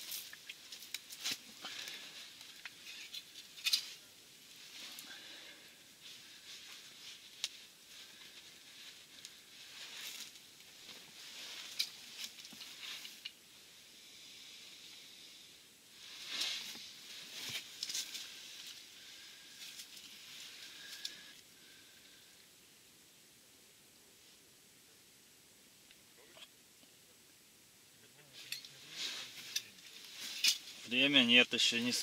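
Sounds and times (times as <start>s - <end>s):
fabric rustling: 16.0s - 21.1s.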